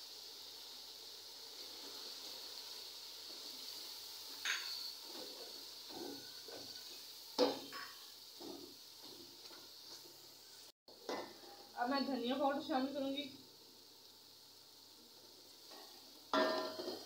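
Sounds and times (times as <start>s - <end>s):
oil sizzling: 0.0s - 17.0s
spoon stirring and scraping pot: 4.3s - 10.1s.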